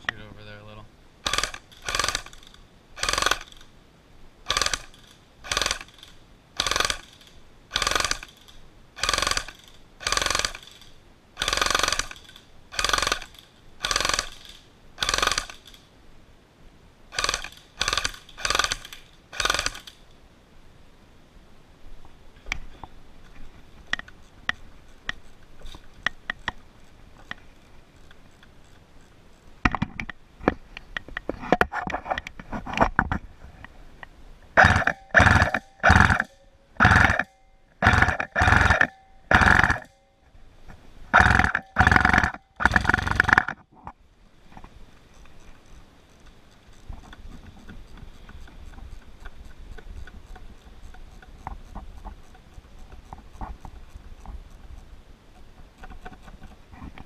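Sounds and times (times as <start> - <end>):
airsoft rifle full-auto bursts: 1.2 - 3.6, 4.5 - 15.8, 17.1 - 20.0, 34.6 - 40.0, 41.1 - 43.6
sharp clicks: 1.2 - 3.7, 4.5 - 15.8, 17.1 - 20.1, 34.6 - 40.0, 41.2 - 43.7.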